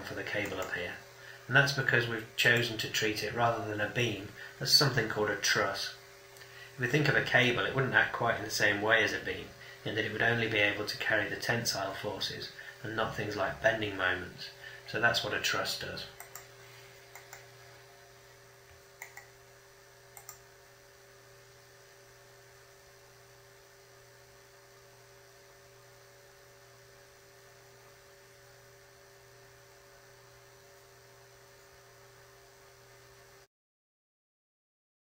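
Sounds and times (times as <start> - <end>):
faint steady hum: 0.0 - 33.5
computer mouse clicks: 0.4 - 0.8, 16.2 - 16.5, 17.1 - 17.5, 19.0 - 19.3, 20.1 - 20.4.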